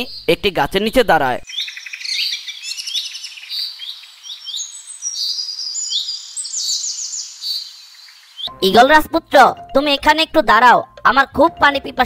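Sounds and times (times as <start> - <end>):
birds chirping: 0.0 - 8.6.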